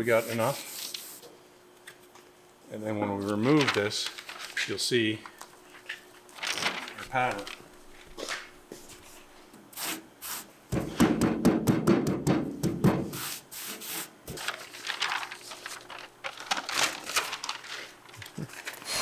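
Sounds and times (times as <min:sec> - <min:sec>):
paper rustling: 0:03.2 - 0:09.3, 0:14.3 - 0:18.9.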